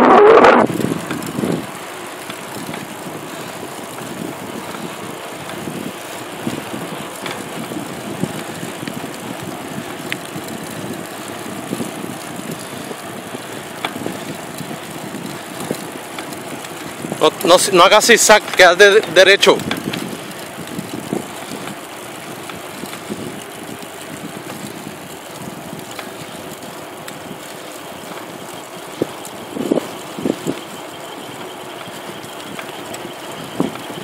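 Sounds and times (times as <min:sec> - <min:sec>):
wind on microphone: 0:00.0 - 0:01.8, 0:19.6 - 0:26.0
vehicle running slowly: 0:00.7 - 0:34.0.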